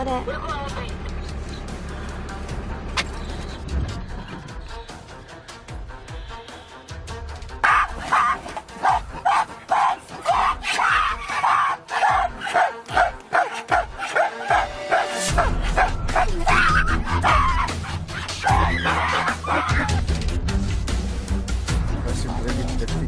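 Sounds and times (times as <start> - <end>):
background music: 0.0 - 23.0
animal barking and yelping: 7.6 - 20.1.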